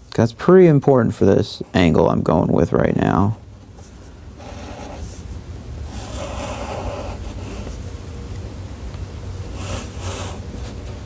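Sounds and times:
marker drawing on paper: 0:03.7 - 0:07.8, 0:09.5 - 0:11.0.

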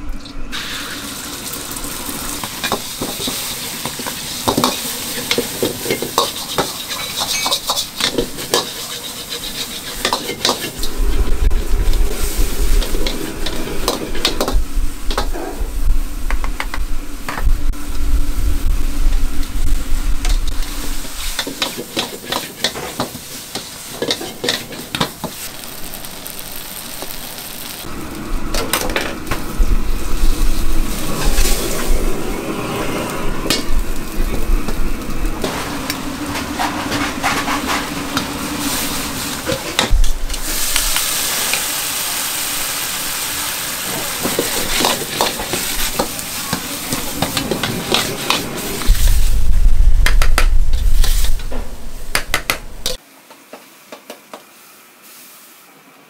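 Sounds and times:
food sizzling in a hot pan: 0:00.5 - 0:15.4, 0:16.8 - 0:49.8, 0:50.6 - 0:52.1, 0:54.5 - 0:55.7
metal utensil scraping a pan: 0:02.6 - 0:11.0, 0:21.1 - 0:25.4
low rumble: 0:10.7 - 0:21.3, 0:27.8 - 0:35.4, 0:48.5 - 0:53.0.

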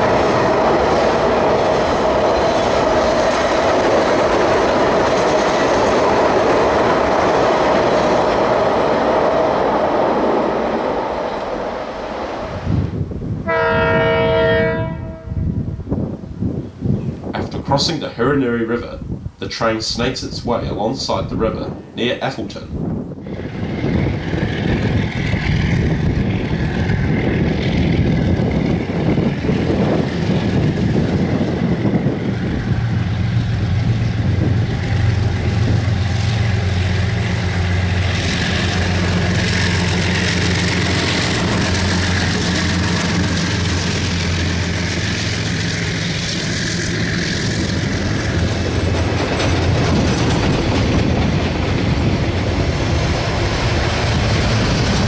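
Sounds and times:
train wheels clattering on rails: 0:00.0 - 0:11.7, 0:23.3 - 0:55.0
diesel locomotive engines droning: 0:00.0 - 0:55.0.

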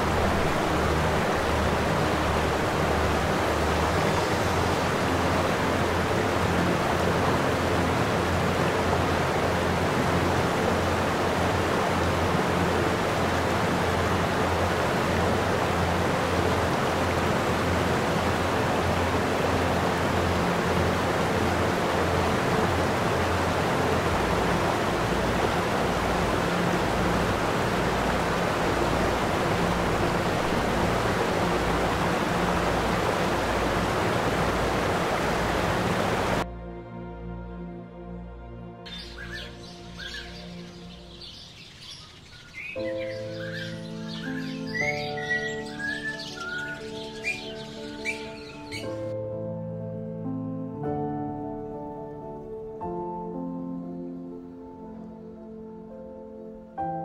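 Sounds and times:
steady rushing noise: 0:00.0 - 0:36.5.

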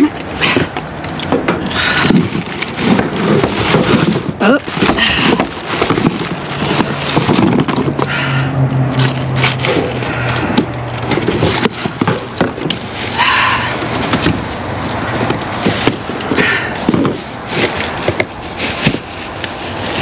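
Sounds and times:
plastic bags crinkling: 0:00.3 - 0:20.0
heavy breathing: 0:01.6 - 0:02.4, 0:08.0 - 0:08.8, 0:09.7 - 0:10.9, 0:13.1 - 0:14.0, 0:16.3 - 0:17.1.

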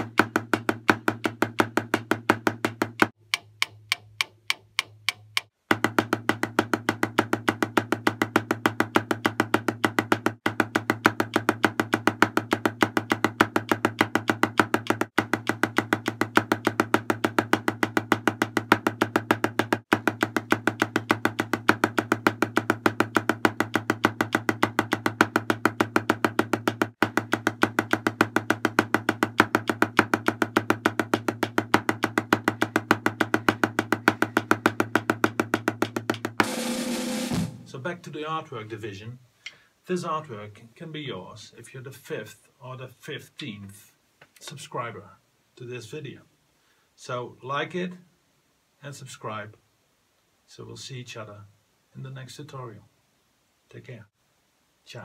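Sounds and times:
drumsticks striking snare drum: 0:00.0 - 0:17.5.

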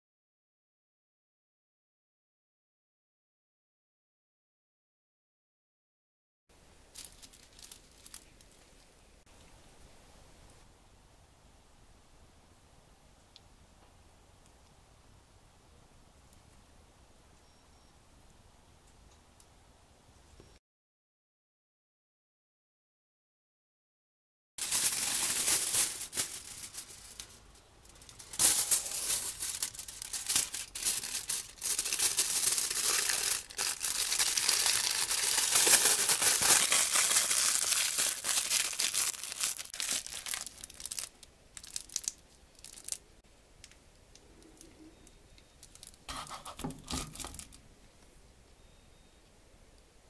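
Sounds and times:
latex gloves rustling: 0:06.9 - 0:08.9, 0:24.6 - 0:43.0.

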